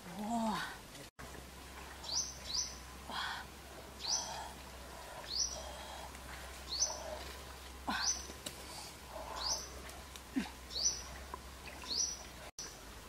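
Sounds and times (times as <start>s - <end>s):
bird chirping: 2.0s - 2.8s, 5.2s - 5.8s, 6.7s - 7.2s, 9.3s - 9.8s, 10.7s - 11.1s, 11.8s - 12.8s.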